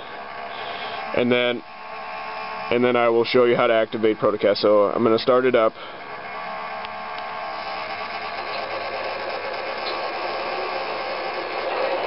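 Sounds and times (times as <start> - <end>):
model locomotive engine hum: 0.0 - 12.0.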